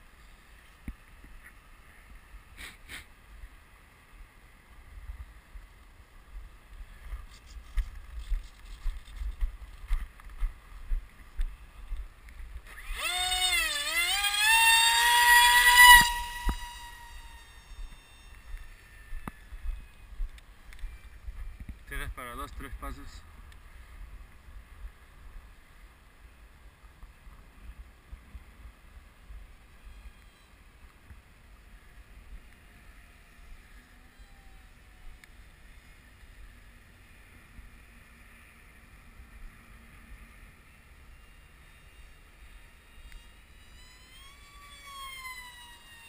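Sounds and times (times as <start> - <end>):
wind rumbling on microphone: 3.3 - 38.0
model plane motor whine: 12.6 - 21.9, 29.5 - 46.0.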